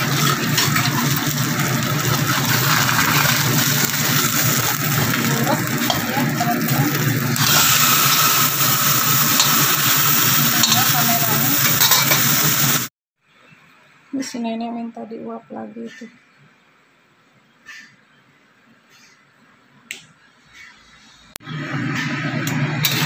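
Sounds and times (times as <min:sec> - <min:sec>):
fish sizzling in oil: 0:00.0 - 0:12.9.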